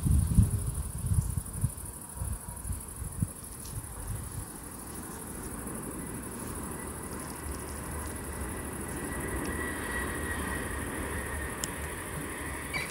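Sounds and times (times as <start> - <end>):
crickets chirring: 0.0 - 12.9
wind rumbling on microphone: 0.0 - 12.9.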